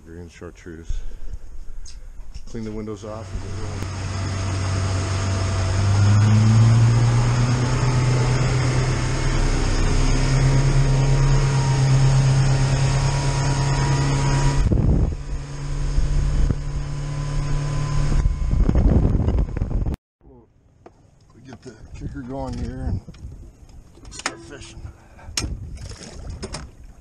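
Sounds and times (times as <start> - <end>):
boat engine humming: 0.9 - 27.0
hull and water rushing: 3.1 - 15.8, 21.0 - 27.0.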